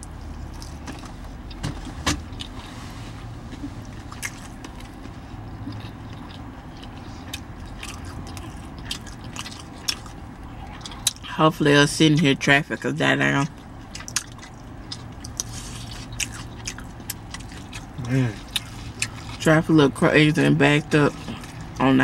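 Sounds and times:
person chewing food: 0.0s - 2.7s, 3.4s - 11.3s, 13.5s - 19.5s, 21.1s - 21.8s
low vehicle rumble: 0.0s - 22.0s.

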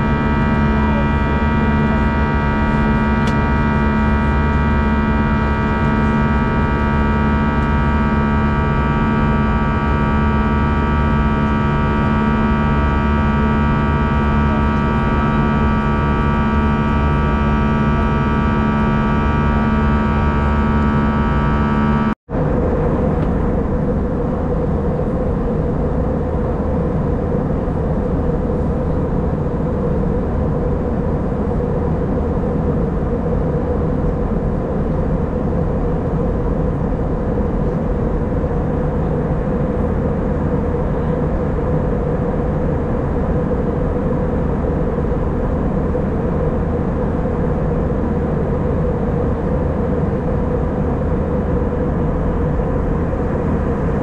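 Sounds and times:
jet airliner cabin drone: 0.0s - 54.0s
steady whining tones: 0.0s - 54.0s.

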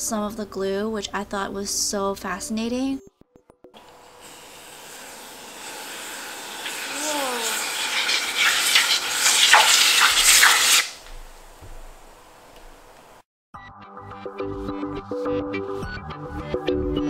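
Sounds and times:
aerosol spray hissing: 4.2s - 11.0s.

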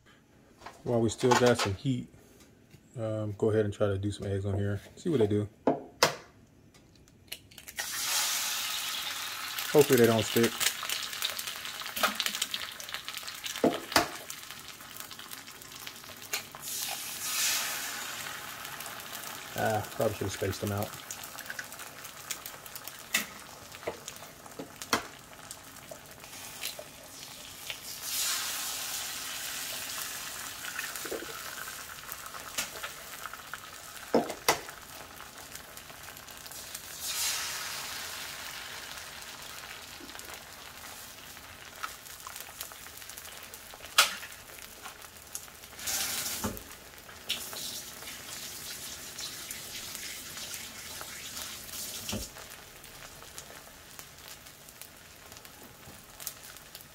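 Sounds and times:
eggs sizzling on griddle: 7.6s - 56.9s.

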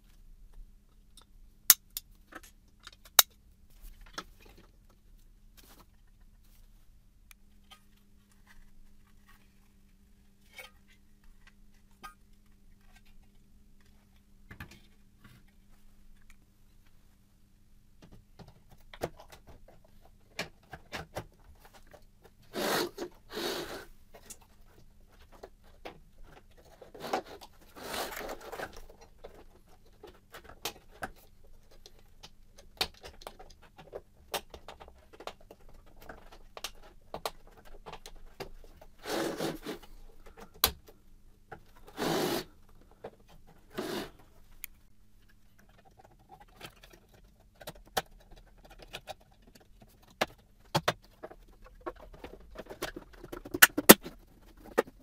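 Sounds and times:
plastic scraping on plastic: 32.9s - 40.6s, 41.6s - 44.3s.

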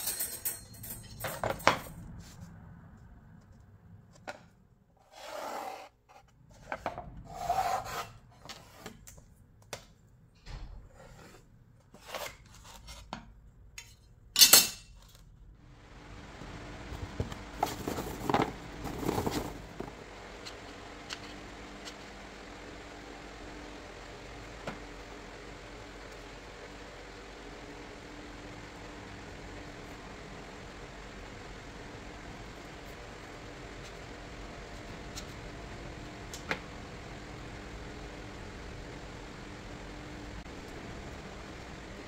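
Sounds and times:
pencil scratching on plywood: 5.0s - 6.7s
steady low hum: 15.4s - 42.0s.

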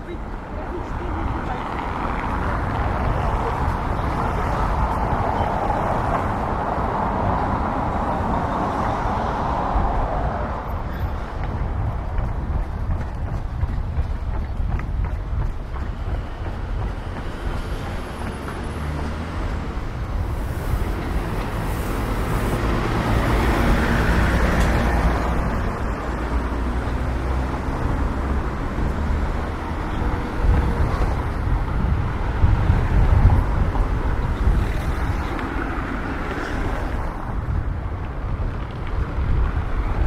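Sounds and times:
traffic noise: 0.0s - 40.0s
wind rumble on microphone: 0.1s - 40.0s.

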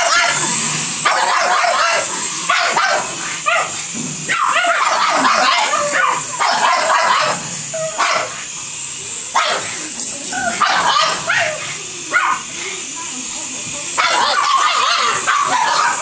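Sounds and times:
dogs barking and yipping: 0.0s - 8.5s, 9.3s - 12.5s, 13.8s - 16.0s
steady high whine: 0.0s - 16.0s.

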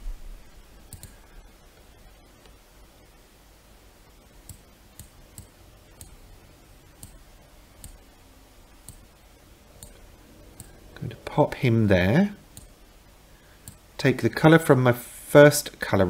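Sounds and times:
mouse buttons clicking: 0.9s - 1.2s, 7.0s - 7.2s, 7.8s - 8.0s, 13.6s - 13.8s.

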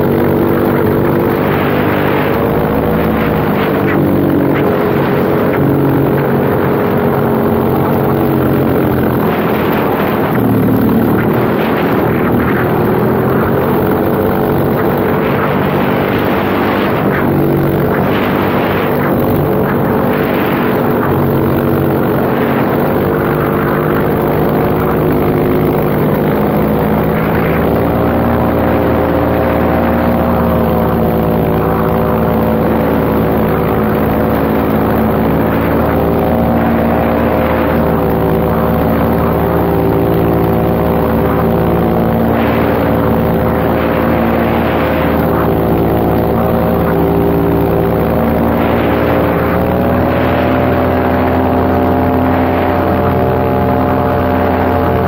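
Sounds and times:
paramotor engine and propeller: 0.0s - 55.0s.

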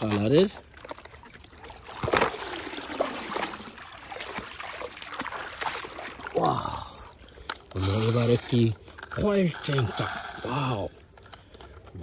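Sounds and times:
water splashing in puddle: 0.0s - 10.1s.

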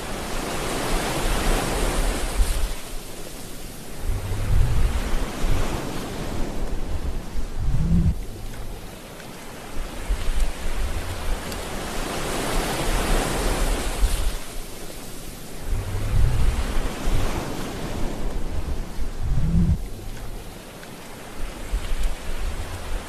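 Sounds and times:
waves breaking on rocky shore: 0.0s - 23.0s
deep rumbling breakers: 4.0s - 9.0s, 15.6s - 17.5s, 18.2s - 20.6s.

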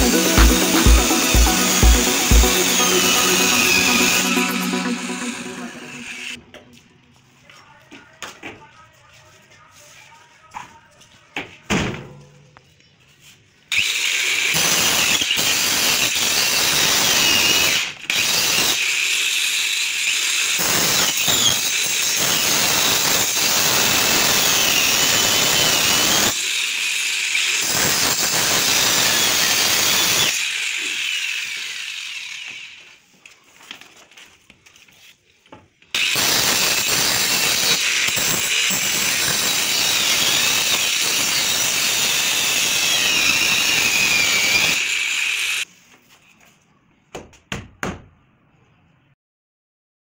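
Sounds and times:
circular saw cutting: 0.0s - 6.4s, 13.7s - 33.0s, 36.0s - 45.7s.

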